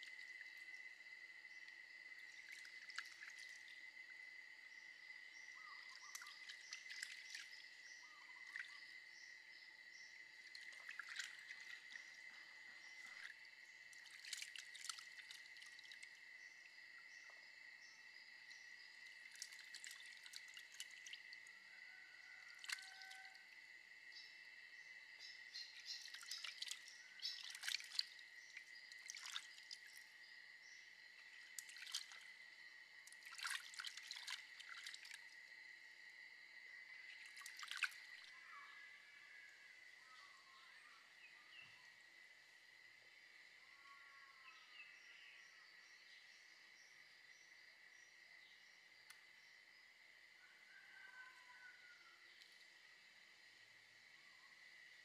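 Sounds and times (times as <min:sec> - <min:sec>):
hands washing prawns in water: 0:06.1 - 0:07.7, 0:10.5 - 0:12.0, 0:13.9 - 0:16.1, 0:19.2 - 0:21.4, 0:22.5 - 0:23.2, 0:25.8 - 0:30.0, 0:31.3 - 0:32.3, 0:33.1 - 0:35.3, 0:37.1 - 0:38.3.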